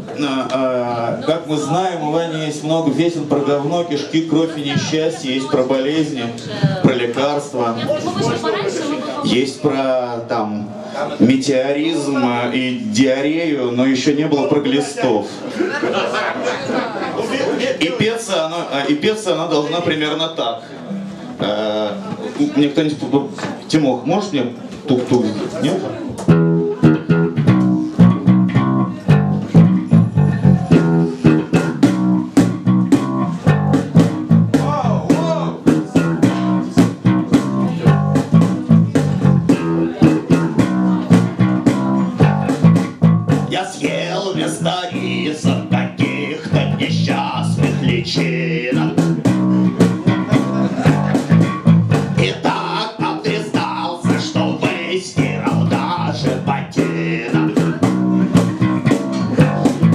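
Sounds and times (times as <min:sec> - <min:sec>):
live band playing: 0:20.6 - 0:22.5, 0:26.1 - 0:59.9
electric bass guitar: 0:20.8 - 0:22.4, 0:26.1 - 0:59.9
man singing: 0:43.5 - 0:49.2, 0:52.2 - 0:58.3.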